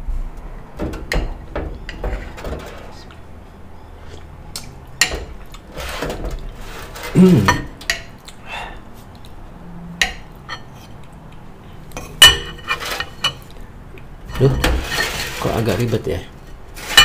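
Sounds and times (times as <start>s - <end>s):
person humming: 7.1s - 7.7s
mouth eating sounds: 7.1s - 9.4s.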